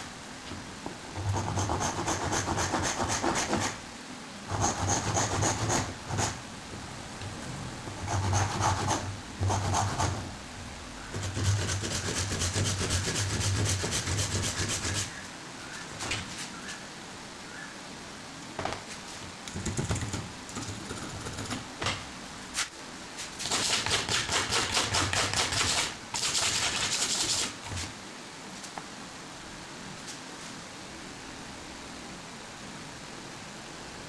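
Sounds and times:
handsaw cutting wood: 1.2s - 3.8s, 4.5s - 6.4s, 8.0s - 10.3s, 11.1s - 15.1s, 23.4s - 27.6s.

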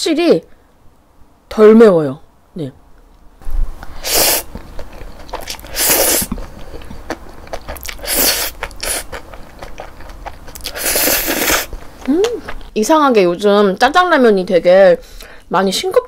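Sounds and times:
person slurping noodles: 4.0s - 4.5s, 5.4s - 7.0s, 7.6s - 9.2s, 10.6s - 11.7s
wet chewing: 4.1s - 12.7s.

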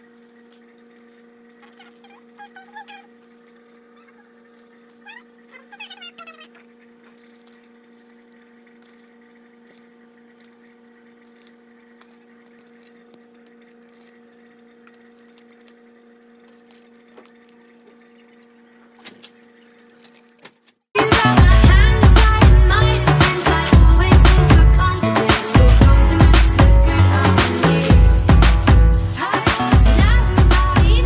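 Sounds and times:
faint electrical hum: 0.0s - 20.9s.

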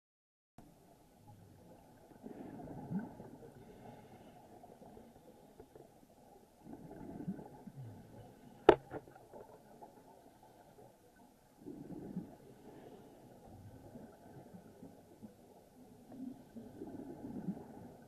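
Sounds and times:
exhaled bubbles rushing: 2.2s - 3.6s, 6.6s - 8.1s.

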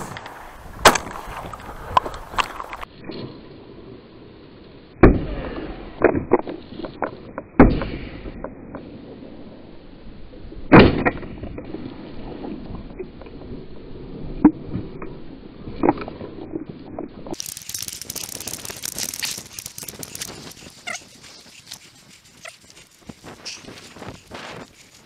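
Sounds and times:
rustling with small clicks: 17.4s - 25.0s.

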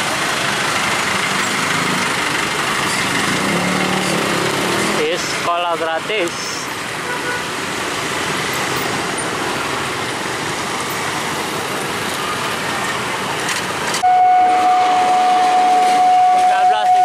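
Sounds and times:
motorcycle: 0.0s - 17.0s
street traffic: 0.0s - 17.0s
level crossing warning tone: 14.0s - 17.0s.

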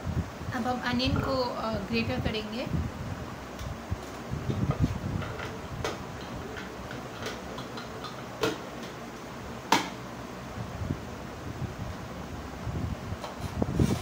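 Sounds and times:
food processor parts clicking and knocking: 5.2s - 9.0s.

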